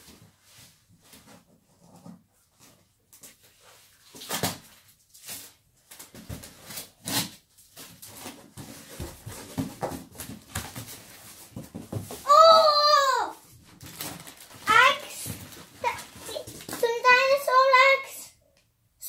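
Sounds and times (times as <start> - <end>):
child's excited squeal: 12.2 - 13.4.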